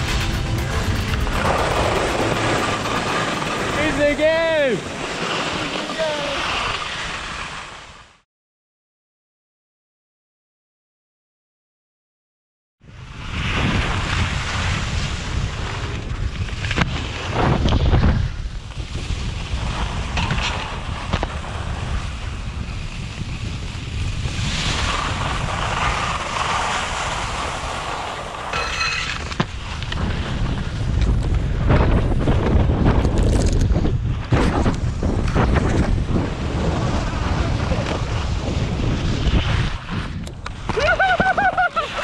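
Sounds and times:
skis sliding on snow: 0.0 - 8.2, 13.0 - 42.0
wind buffeting microphone: 29.5 - 42.0.

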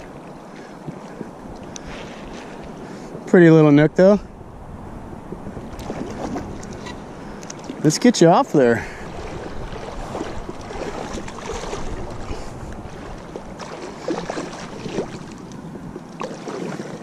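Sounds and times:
fish thrashing water splashing: 9.2 - 15.4, 16.2 - 17.0.

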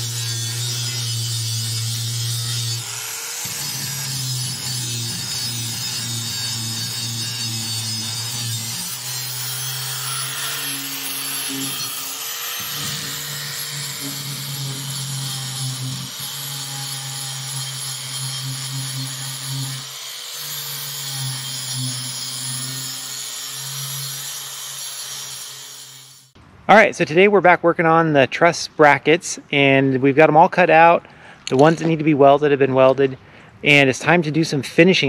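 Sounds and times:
angle grinder motor: 0.0 - 26.4
disc grinding steel: 0.0 - 26.4.

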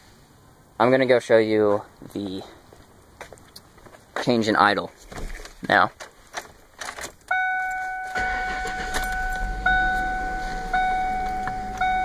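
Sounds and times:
car engine starting and idling: 7.2 - 12.0
dashboard warning chime: 7.3 - 12.0.

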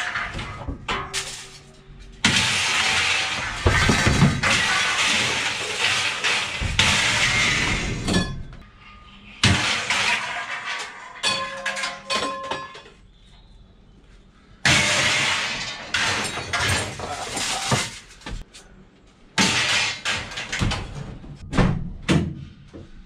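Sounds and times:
scrap metal crashing onto pile: 0.0 - 8.4, 9.4 - 12.9, 14.6 - 18.2, 19.4 - 20.8.

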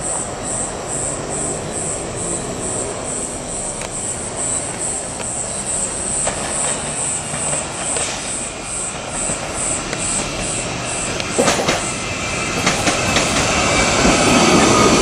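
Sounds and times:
electric train rumbling: 0.0 - 15.0
insects chirping: 0.0 - 15.0.

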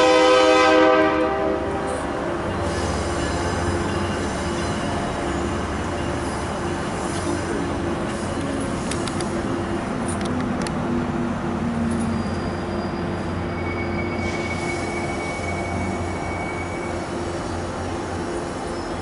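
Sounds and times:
diesel locomotive drone: 0.0 - 19.0
sharp clicks: 8.4 - 9.4
high wheel squeal: 11.8 - 19.0.

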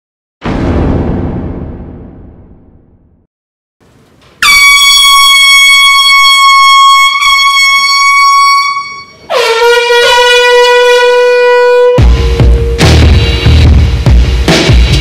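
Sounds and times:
air horn blasts: 4.4 - 12.9.

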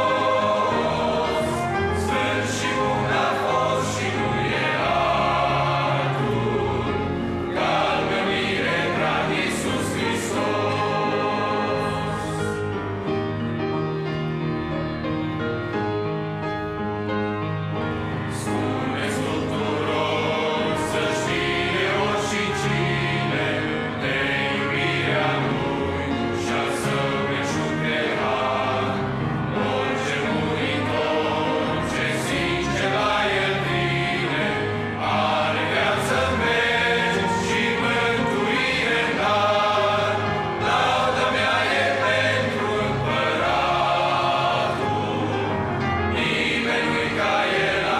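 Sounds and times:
men's choir singing a hymn: 0.0 - 13.0, 17.8 - 47.9
grand piano: 0.0 - 47.9
trumpet: 32.0 - 43.8.

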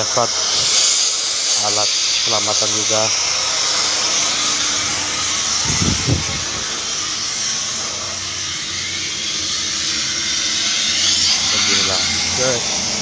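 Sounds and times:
wind buffeting on microphone: 5.6 - 6.9.

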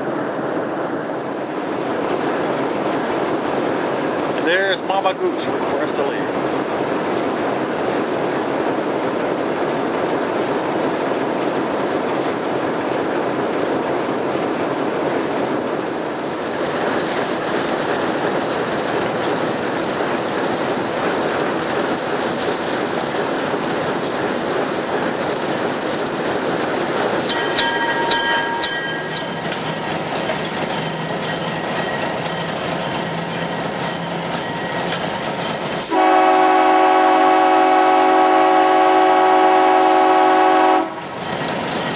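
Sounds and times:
diesel locomotive engine: 0.0 - 41.9
wheels clacking on rails: 0.8 - 41.9
locomotive air horn: 35.8 - 41.0.

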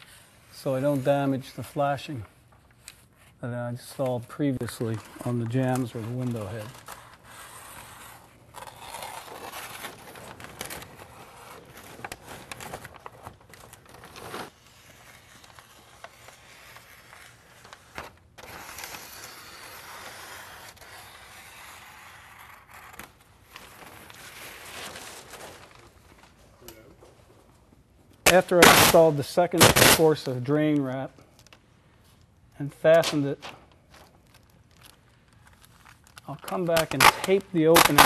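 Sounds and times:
sheet rustling and crinkling: 23.4 - 27.7.

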